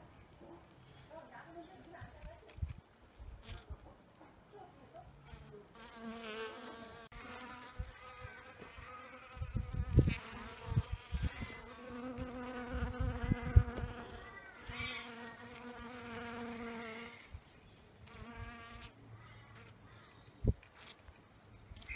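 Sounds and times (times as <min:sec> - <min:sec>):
bees buzzing: 0:05.8 - 0:17.3.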